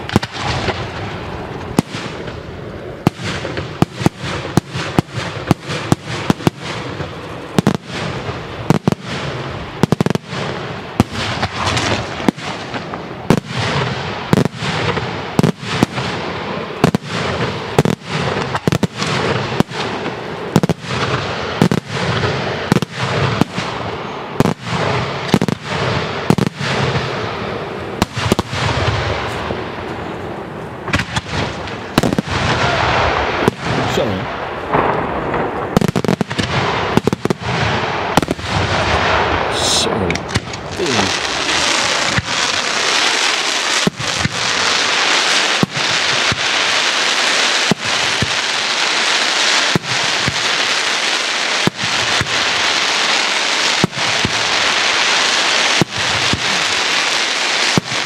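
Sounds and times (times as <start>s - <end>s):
echoing reports: 33.7s - 34.7s, 38.3s - 41.4s.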